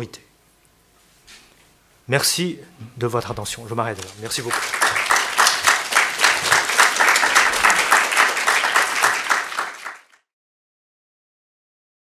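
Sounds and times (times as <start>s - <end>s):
audience applauding: 4.0s - 10.2s.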